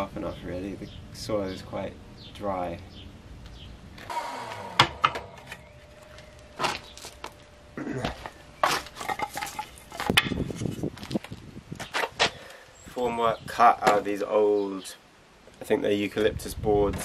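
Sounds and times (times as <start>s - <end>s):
wooden stakes clacking together: 8.6s - 12.4s.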